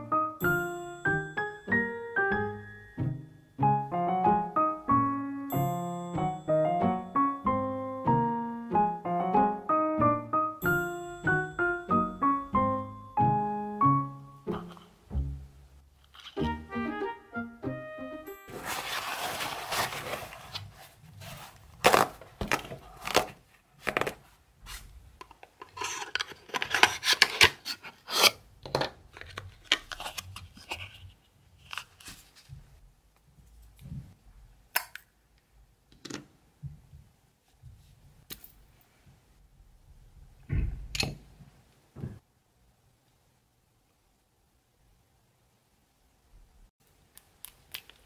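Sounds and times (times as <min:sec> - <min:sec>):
cardboard box opening: 0:18.5 - 0:24.8
paper towel tearing and rustling: 0:18.5 - 0:24.9.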